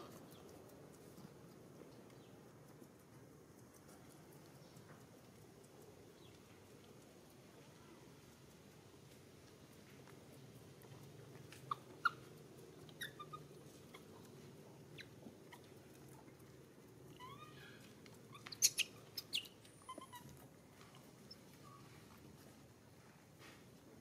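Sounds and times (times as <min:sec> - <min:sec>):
monkeys squeaking and chirping: 0:11.6 - 0:12.3, 0:12.9 - 0:14.2, 0:14.9 - 0:15.7, 0:17.1 - 0:20.3.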